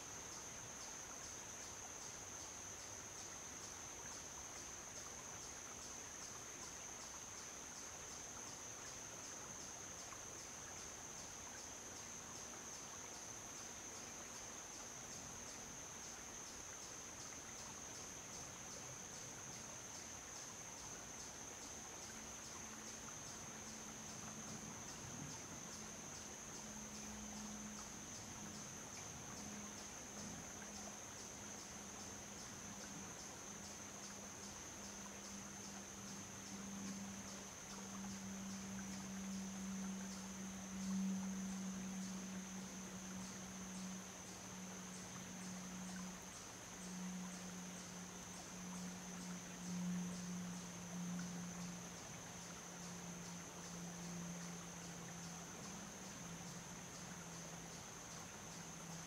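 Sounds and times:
insects trilling: 0.0 - 59.0
faint low drone: 21.8 - 59.0.

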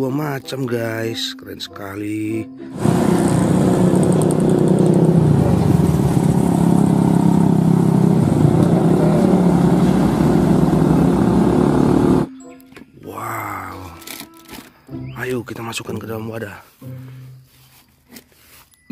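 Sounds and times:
heavy diesel trucks running: 2.7 - 12.3
motorcycle engines passing: 2.7 - 12.3.

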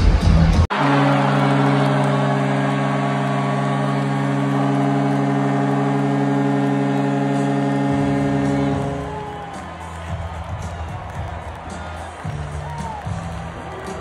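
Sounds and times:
crowd cheering: 0.0 - 14.0
goal horn blast: 0.7 - 14.0.

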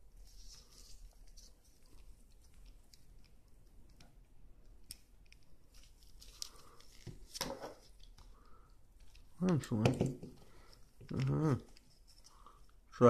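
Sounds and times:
pliers clicking and scraping cable: 1.3 - 6.5.

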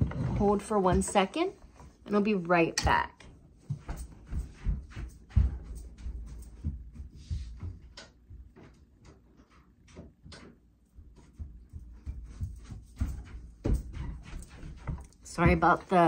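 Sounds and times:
knocks and clicks of handling objects: 2.8 - 16.0.

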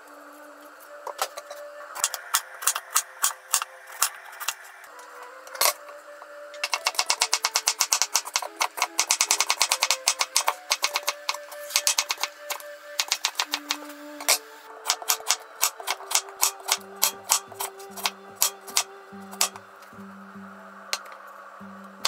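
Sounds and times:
soft background music: 0.0 - 22.0.

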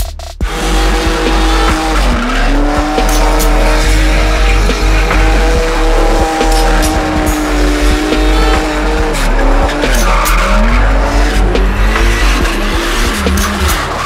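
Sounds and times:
car engine revving: 0.0 - 14.0
tyres squealing: 0.5 - 14.0.

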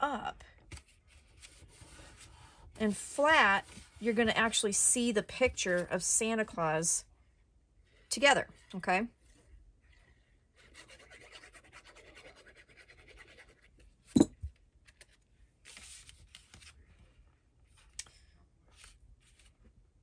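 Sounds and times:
paper rustling and rubbing: 0.8 - 2.3, 15.6 - 16.8, 18.7 - 19.6
glue bottle scratching on paper: 10.6 - 13.8.

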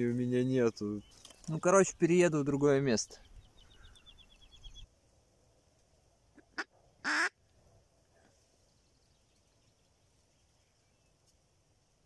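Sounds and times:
duck call quacking: 6.4 - 7.4.

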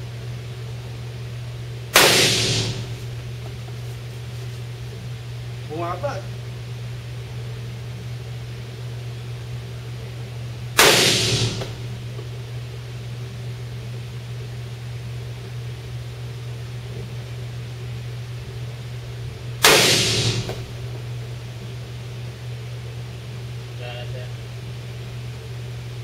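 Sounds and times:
steady low hum: 0.0 - 26.0
pistol shots: 2.0 - 3.2, 10.8 - 12.1, 19.6 - 20.9.

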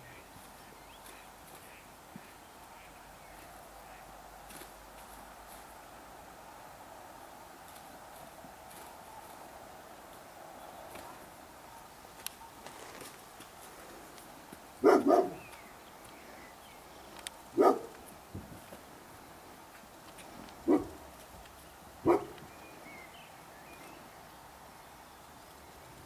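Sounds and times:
deer barking in alarm: 14.8 - 15.4.

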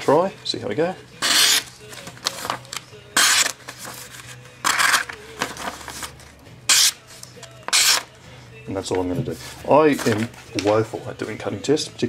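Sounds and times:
knife slicing paper: 1.2 - 2.6, 3.2 - 6.0
paper rustling: 1.8 - 6.3, 9.3 - 10.9.

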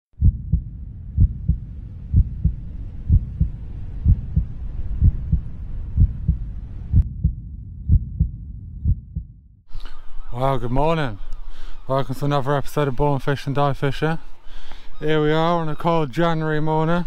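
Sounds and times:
heartbeat thumps: 0.2 - 9.5.

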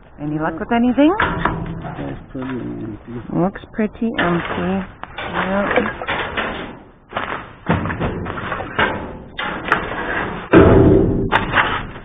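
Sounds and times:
loud ringing bang: 0.8 - 2.4, 10.6 - 11.5
thumps and knocks from a dumpster: 4.2 - 12.0.

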